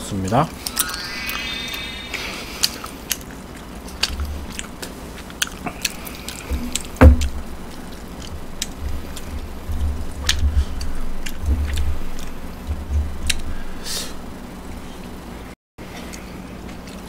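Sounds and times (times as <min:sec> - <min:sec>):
chewing and mouth sounds: 0:03.6 - 0:09.3, 0:16.0 - 0:17.0.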